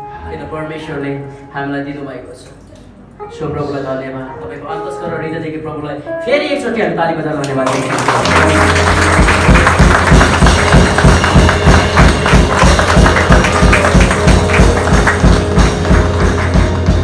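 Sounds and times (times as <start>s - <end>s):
rhythmic hand clapping: 7.4s - 17.0s
live band bass and drums: 8.2s - 17.0s.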